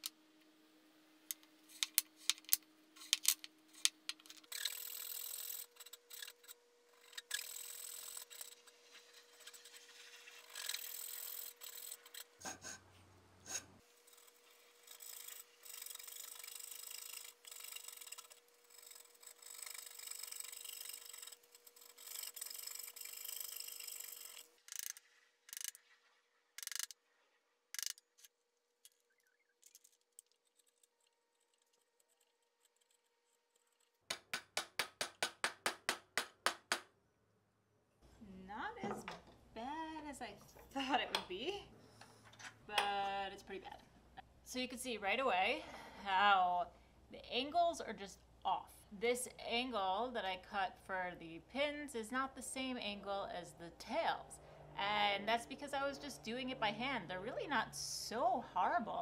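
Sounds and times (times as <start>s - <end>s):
coping saw rasping in wood: 4.5s - 12.8s
sharp clicks: 27.7s - 29.0s.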